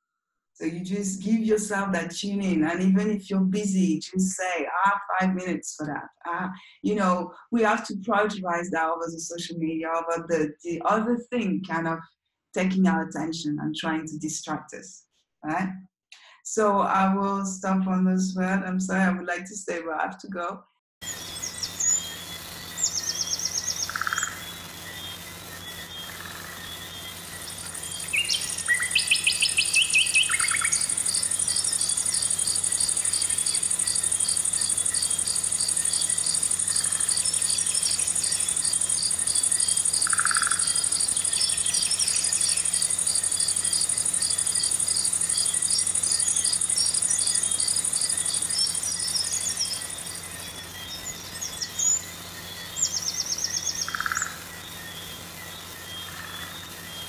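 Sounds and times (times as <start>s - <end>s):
insect buzz: 21.0s - 57.0s
quick insect chirps: 21.0s - 57.0s
short bird calls: 28.0s - 32.4s.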